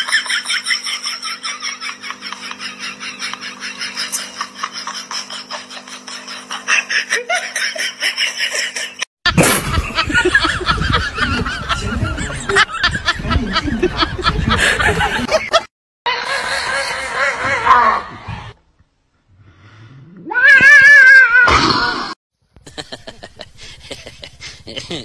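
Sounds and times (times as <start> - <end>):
steady low hum: 0.0 - 15.6
person snickering: 2.5 - 15.5, 22.6 - 25.0.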